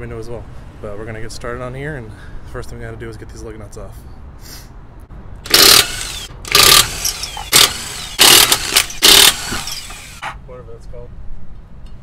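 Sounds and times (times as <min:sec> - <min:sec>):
impact wrench hammering: 0:05.5 - 0:10.2.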